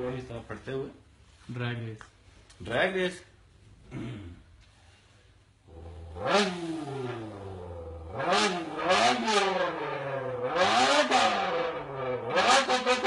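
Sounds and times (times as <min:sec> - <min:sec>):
man imitating revving engine: 0:05.7 - 0:11.5.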